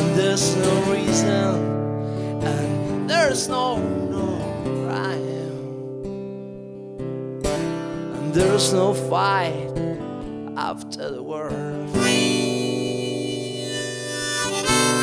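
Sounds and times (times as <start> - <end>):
acoustic guitar strumming: 0.0 - 15.0
harmonica playing: 12.0 - 15.0.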